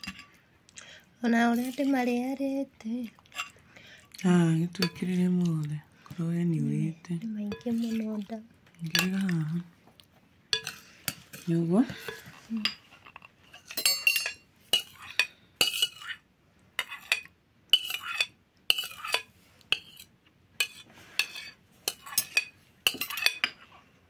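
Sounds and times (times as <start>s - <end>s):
metal spoon scraping glass bowl: 7.5s - 8.2s, 10.6s - 16.2s, 16.8s - 23.7s.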